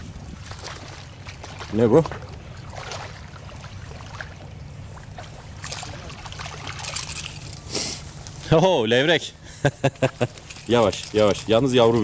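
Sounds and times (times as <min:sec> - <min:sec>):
water splashing and gurgling: 0:00.0 - 0:07.7.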